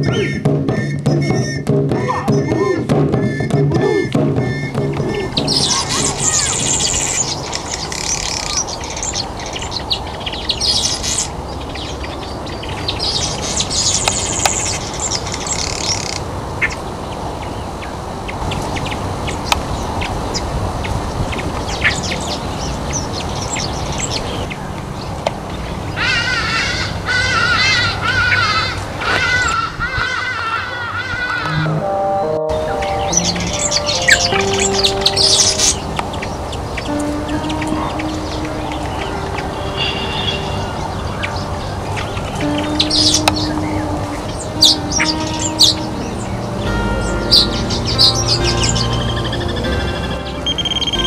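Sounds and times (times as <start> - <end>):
music: 0.0 - 7.4, 31.4 - 51.0
wavering bird chatter: 0.0 - 31.6, 33.0 - 51.0
birds chirping rapidly: 0.0 - 31.8, 32.6 - 51.0
short bird calls: 33.0 - 45.8.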